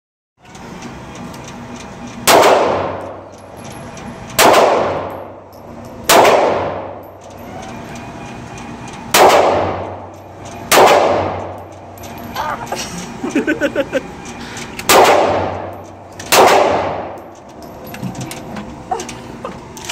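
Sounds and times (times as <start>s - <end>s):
pistol shots with ringing echo: 2.3s - 3.0s, 4.4s - 5.3s, 6.0s - 7.0s, 9.1s - 10.0s, 10.7s - 11.5s, 14.9s - 15.7s, 16.3s - 17.2s.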